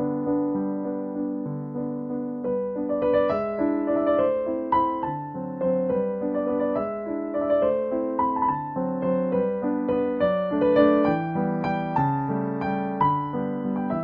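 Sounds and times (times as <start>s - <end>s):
piano tune: 0.0s - 14.0s.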